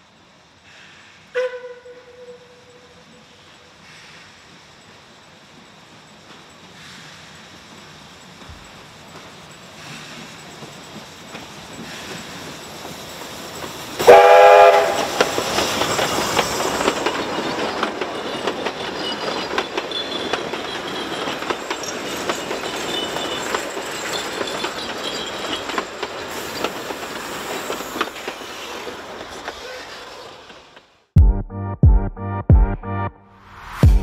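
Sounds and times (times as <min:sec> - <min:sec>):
steam locomotive whistle: 0:01.3 - 0:03.2, 0:14.0 - 0:15.6
train wheels clicking over rail joints: 0:03.8 - 0:31.0
wheel flange squeals: 0:14.9 - 0:30.6.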